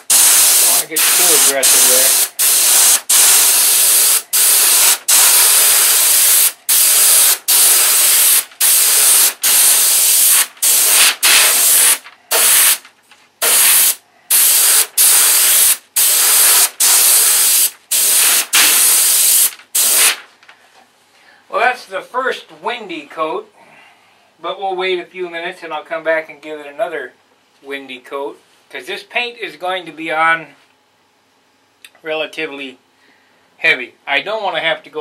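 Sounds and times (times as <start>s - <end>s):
airbrush spraying paint: 0.0s - 12.8s, 13.4s - 20.2s.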